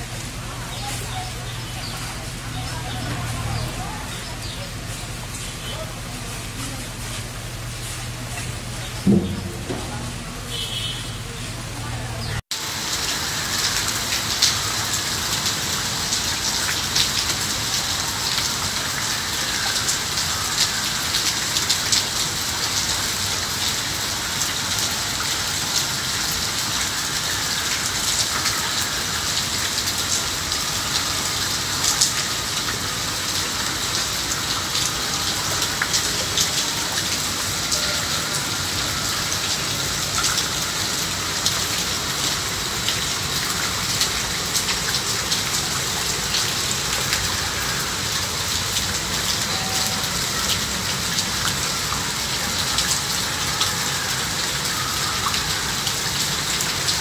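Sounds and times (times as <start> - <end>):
heavy rain on pavement and puddles: 0.0 - 57.0.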